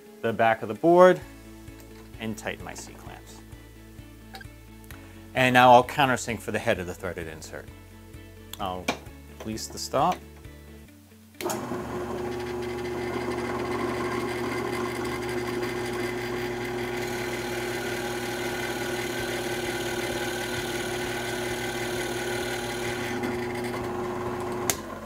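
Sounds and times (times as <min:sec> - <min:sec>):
drill bit boring into wood: 0:11.4 - 0:25.0
drill press motor humming: 0:11.4 - 0:25.0.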